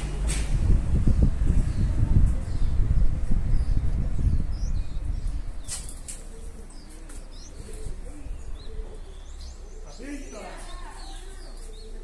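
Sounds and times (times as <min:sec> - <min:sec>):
wind rumble on microphone: 0:00.0 - 0:08.8
small birds chirping faintly: 0:01.1 - 0:12.0
pigeons cooing softly: 0:03.4 - 0:12.0.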